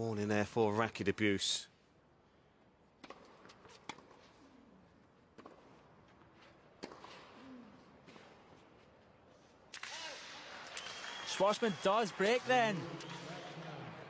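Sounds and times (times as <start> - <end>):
tennis ball hits and bounces: 3.0 - 4.3, 5.3 - 5.8, 6.8 - 7.3.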